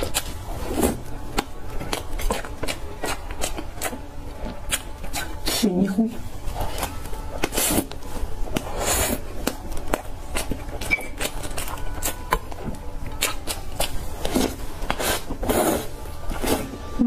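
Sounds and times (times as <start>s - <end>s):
chewing and mouth smacks: 1.3s - 4.0s, 9.4s - 15.2s.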